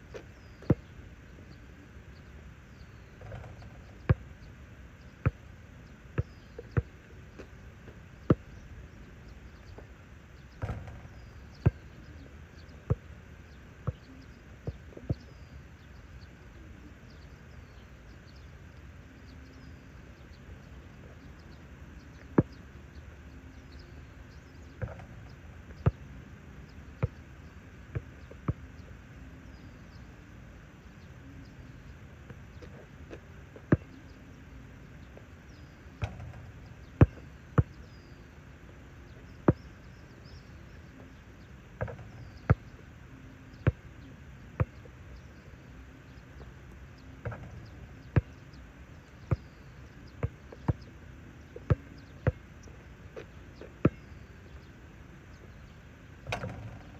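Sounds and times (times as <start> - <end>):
basketball bouncing on asphalt: 0.1 - 0.9, 3.2 - 4.4, 5.2 - 5.5, 6.2 - 8.6, 9.7 - 12.0, 24.4 - 26.0, 27.0 - 27.2, 35.1 - 38.1, 39.1 - 40.4, 41.8 - 42.8, 43.6 - 43.9, 44.6 - 45.3, 47.2 - 48.4, 49.3 - 50.9, 53.2 - 54.6, 56.2 - 56.9
ball striking hoop: 10.6 - 11.8, 36.0 - 37.8, 41.8 - 42.6, 47.2 - 48.4, 56.2 - 56.9.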